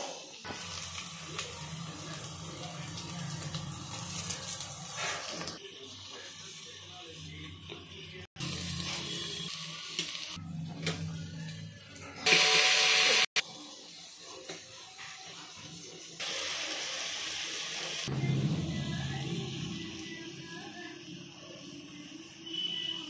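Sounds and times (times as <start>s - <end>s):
onions sizzling in oil: 0.0s - 18.1s
low hum: 18.1s - 21.0s.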